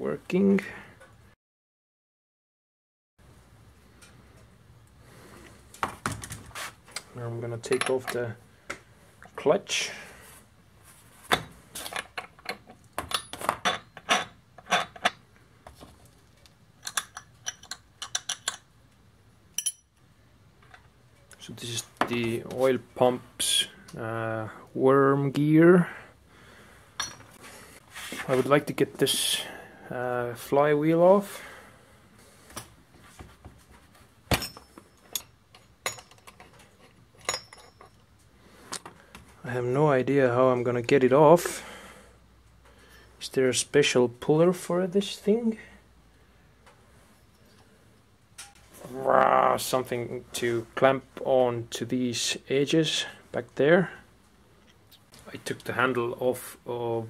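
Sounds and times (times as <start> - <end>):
metallic clinks and knocks: 11.3 - 15.2, 16.8 - 18.7, 27.0 - 27.4, 34.3 - 38.2
metal tools clinking: 19.6 - 20.0, 27.0 - 27.4, 34.3 - 38.2.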